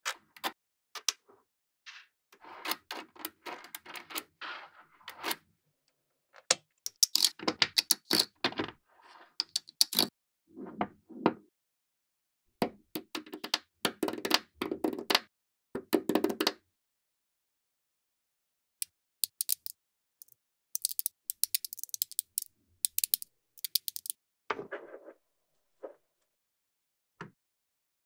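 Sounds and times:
magnetic balls clicking: 19.2 - 24.1.

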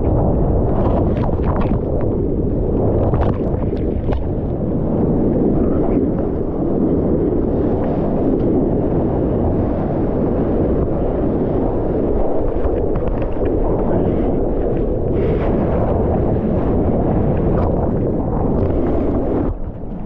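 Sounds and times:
sea water rushing and sloshing: 0.0 - 20.0
wind buffeting microphone: 0.0 - 20.0.

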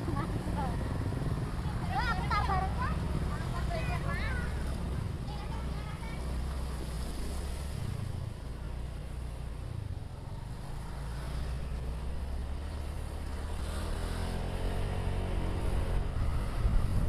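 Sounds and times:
wind rumble on microphone: 13.4 - 17.0.

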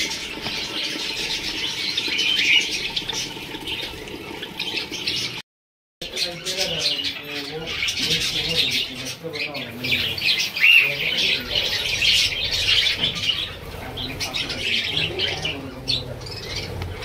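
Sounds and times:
budgerigars chattering: 0.0 - 5.4, 6.0 - 17.0.

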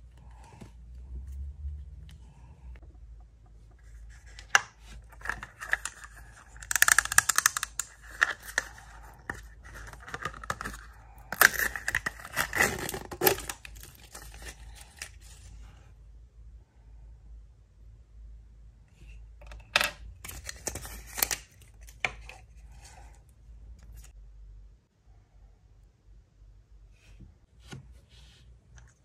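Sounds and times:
toy packet tearing and crinkling: 5.1 - 15.4.

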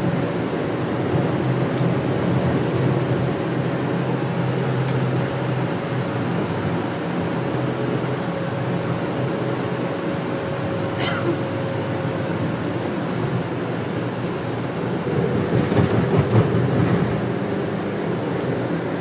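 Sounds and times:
bus engine and road noise: 0.0 - 19.0.

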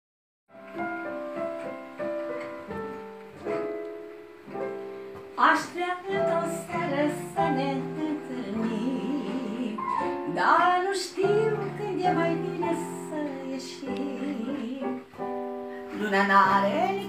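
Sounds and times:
piano chords: 0.5 - 17.0
woman singing: 5.4 - 17.0.

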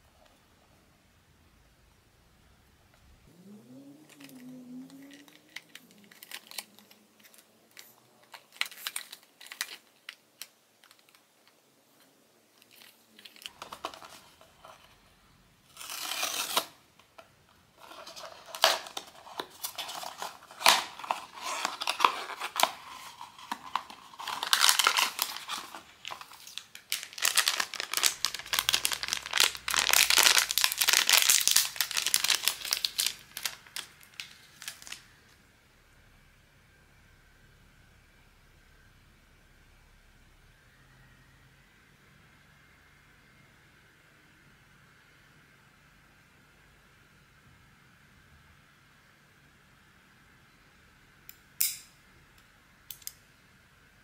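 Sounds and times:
packaging tearing: 4.1 - 11.2, 15.7 - 16.8, 17.8 - 35.0
plastic wrapping crinkling: 4.1 - 11.6, 12.6 - 15.0, 17.8 - 35.1.

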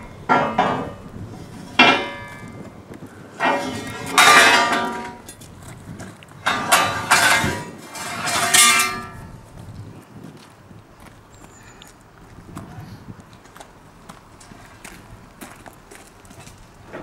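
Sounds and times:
steel rails clanging: 0.0 - 2.8, 3.4 - 5.4, 6.4 - 9.4.

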